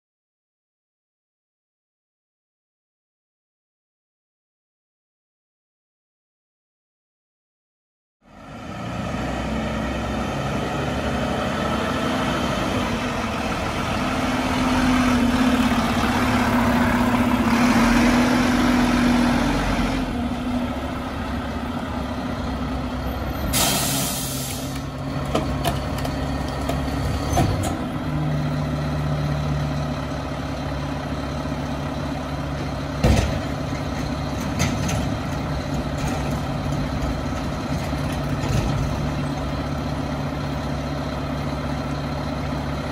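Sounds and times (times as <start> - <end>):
garbage truck diesel engine: 8.2 - 42.9
air brake hiss: 23.4 - 24.8.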